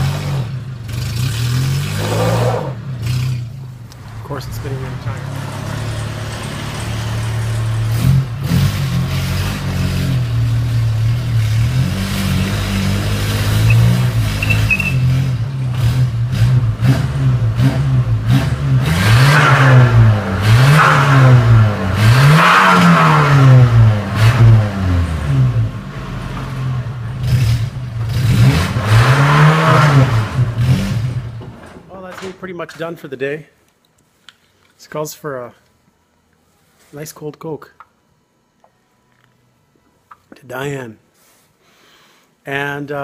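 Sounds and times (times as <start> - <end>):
truck engine running and revving: 0.0 - 31.4.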